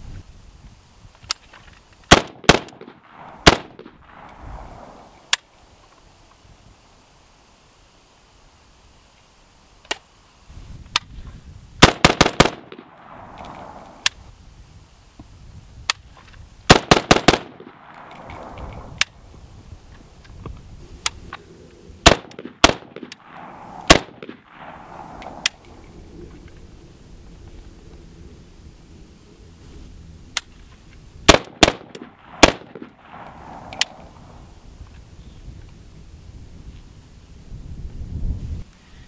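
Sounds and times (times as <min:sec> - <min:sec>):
rolling echo of gunshots: 0:02.1 - 0:05.3, 0:11.8 - 0:14.1, 0:16.7 - 0:19.0, 0:22.0 - 0:25.8, 0:31.3 - 0:34.6
rifle shots: 0:02.1 - 0:05.4, 0:11.8 - 0:14.1, 0:16.7 - 0:19.3, 0:22.0 - 0:25.8, 0:31.3 - 0:34.6.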